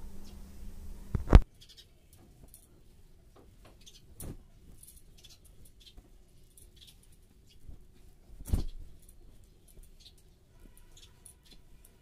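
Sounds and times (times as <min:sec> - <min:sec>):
quilts rustling: 0:03.5 - 0:12.0.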